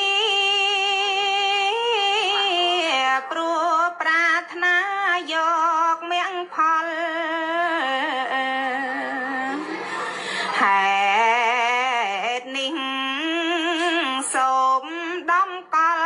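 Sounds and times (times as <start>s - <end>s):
woman singing with vibrato: 0.0s - 16.0s
singer breathing: 9.7s - 10.6s.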